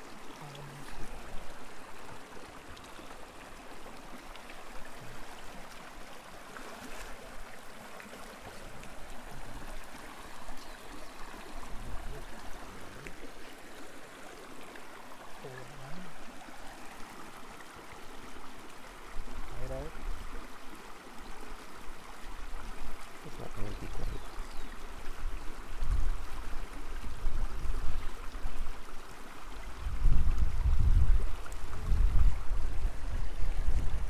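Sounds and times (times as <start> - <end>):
water rushing over stones: 0.0 - 34.0.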